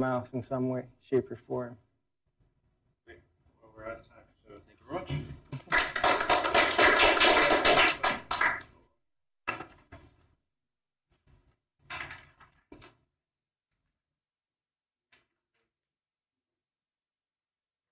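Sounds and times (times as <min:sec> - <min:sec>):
audience applause: 0:05.7 - 0:08.7.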